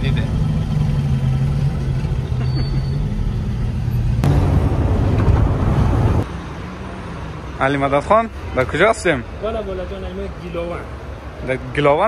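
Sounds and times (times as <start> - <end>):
road and wind rush: 0.0 - 12.0
car engine hum: 0.2 - 7.6.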